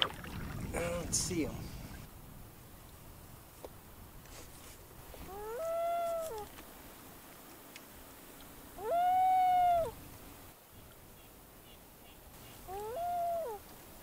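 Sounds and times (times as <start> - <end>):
loon calling: 5.2 - 6.5, 8.8 - 10.0, 11.2 - 13.6.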